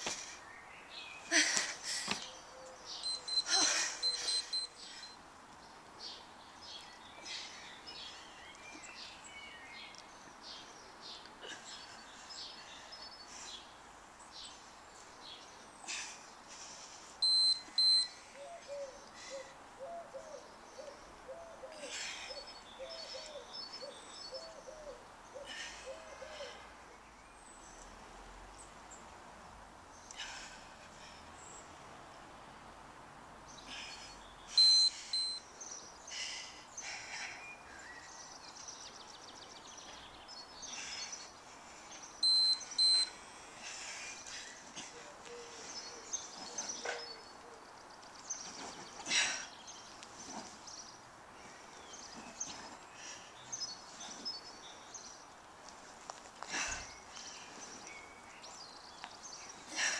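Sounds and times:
birds chirping: 0:00.0 - 0:32.3, 0:33.4 - 0:59.9
loud electronic beep: 0:03.0 - 0:05.2, 0:34.6 - 0:35.4, 0:42.2 - 0:43.1.

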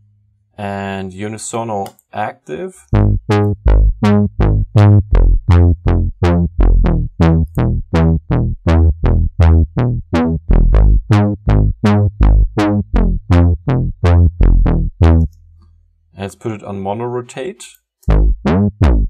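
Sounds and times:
synth bass line: 0:02.9 - 0:15.5, 0:18.1 - 0:19.0.

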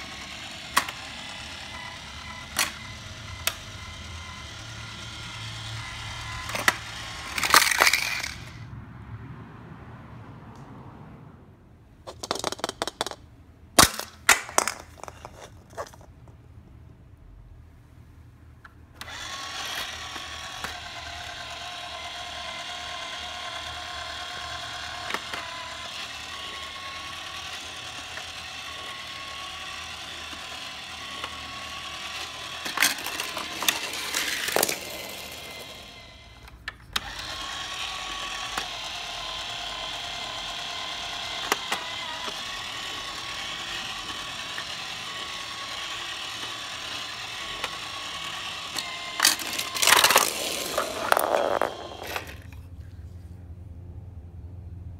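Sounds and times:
toy turntable motor whirring: 0:00.0 - 0:08.6, 0:12.2 - 0:13.2, 0:19.0 - 0:52.7.

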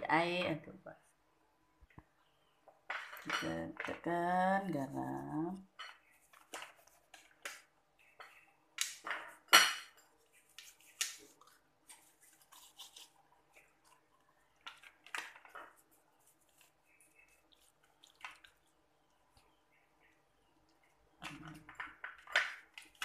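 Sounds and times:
hands rubbing salt into fish: 0:10.2 - 0:14.0, 0:15.7 - 0:18.6.

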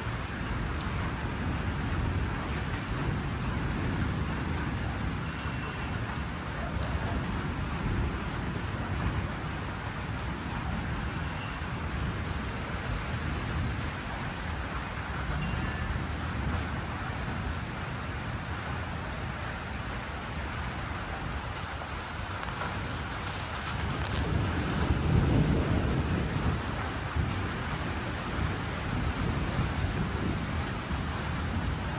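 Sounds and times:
steady rain: 0:00.0 - 0:31.9
low rumble of thunder: 0:22.4 - 0:31.9.

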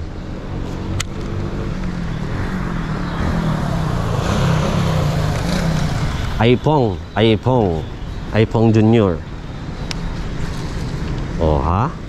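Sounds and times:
vehicle engine passing by: 0:00.0 - 0:09.0.

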